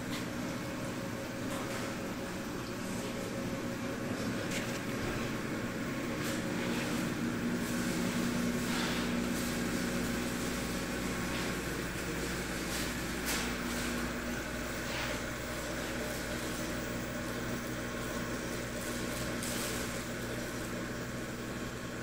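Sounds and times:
pumps humming: 0.0 - 22.0.

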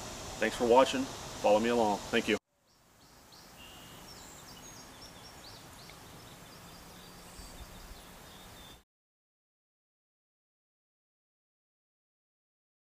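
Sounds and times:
faint hiss: 0.0 - 8.8
birds singing: 0.6 - 8.8.

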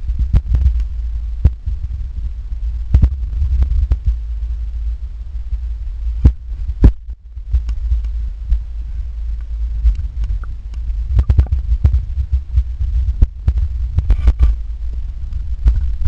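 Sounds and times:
low underwater rumble: 0.0 - 16.0
sharp underwater clicks and knocks: 9.9 - 11.6.

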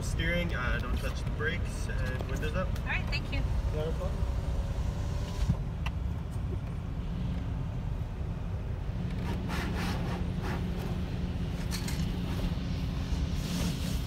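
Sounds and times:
car engine idling: 0.0 - 9.5
car wash machinery rumble: 0.0 - 14.0.

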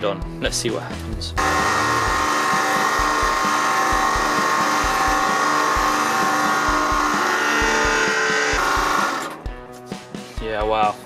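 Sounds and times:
hydraulic pump motor whining: 1.4 - 9.5.

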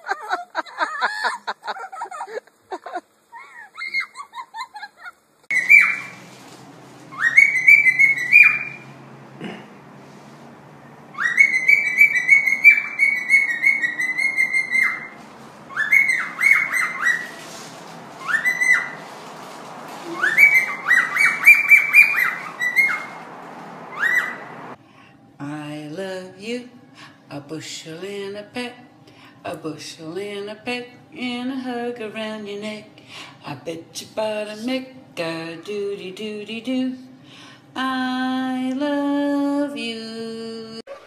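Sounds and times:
parrot whistling: 5.5 - 6.2, 7.1 - 8.9, 11.1 - 17.4, 18.2 - 19.0, 20.0 - 23.2, 23.9 - 24.6.

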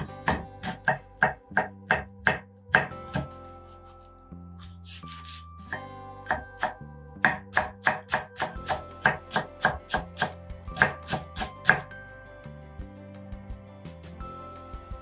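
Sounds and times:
knife chopping on wooden board: 0.0 - 3.4, 4.9 - 11.9
soft background music: 0.0 - 15.0.

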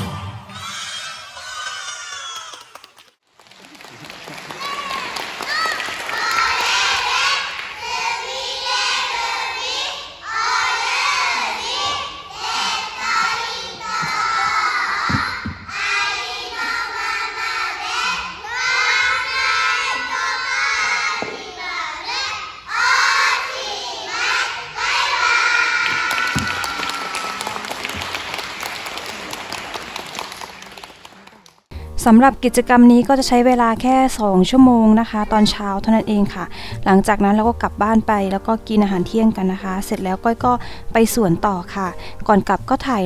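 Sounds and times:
children singing in unison: 6.0 - 26.5.

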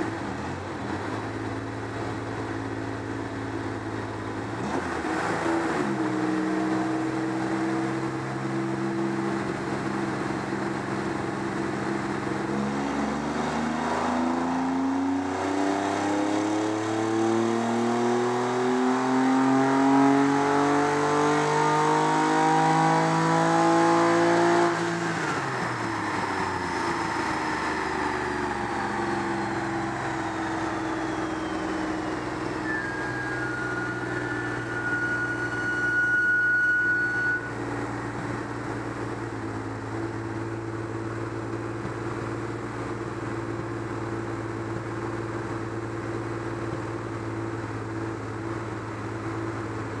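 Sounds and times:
high whine: 24.6 - 44.8
car engine idling: 25.4 - 34.9, 37.5 - 50.0.

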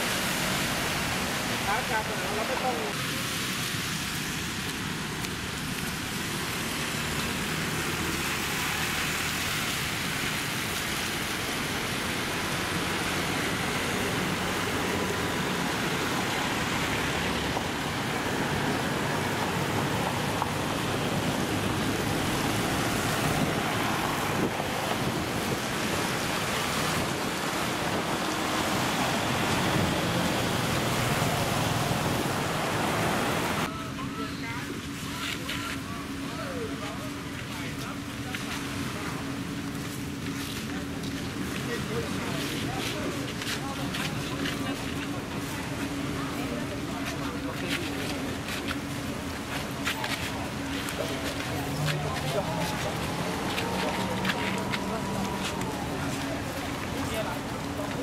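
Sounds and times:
road traffic passing: 0.0 - 58.0.

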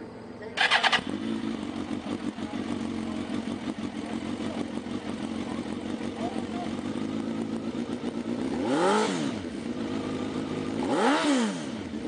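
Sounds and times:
motorcycle engine starting and idling: 0.0 - 12.0.

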